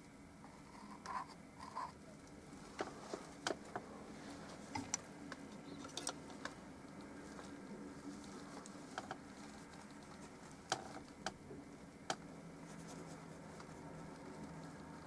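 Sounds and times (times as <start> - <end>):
faint low hum: 0.0 - 15.0
paintbrush strokes on canvas: 12.6 - 15.0.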